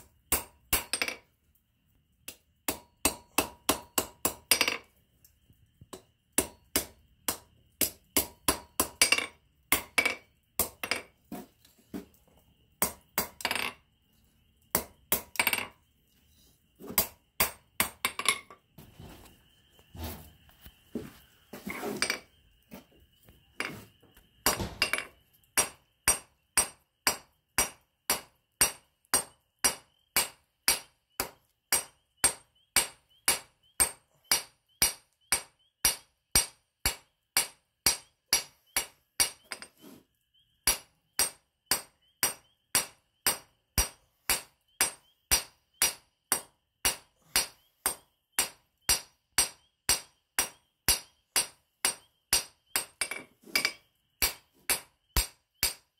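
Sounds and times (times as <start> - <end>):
hammer striking steel on anvil: 24.4 - 39.7, 40.7 - 55.8.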